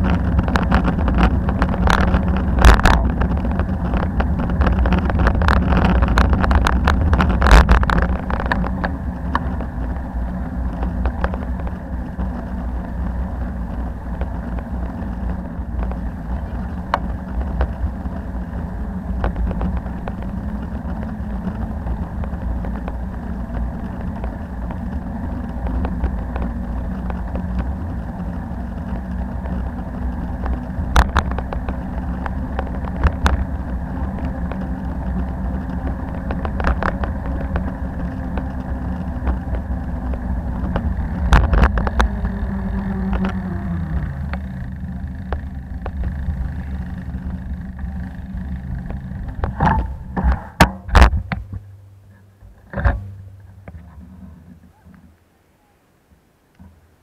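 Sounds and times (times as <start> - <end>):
vehicle engine slowing: 0.0 - 55.2
motor vehicle engines humming: 0.0 - 57.0
wind and road noise: 0.0 - 57.0
sharp knocks: 49.4 - 51.7.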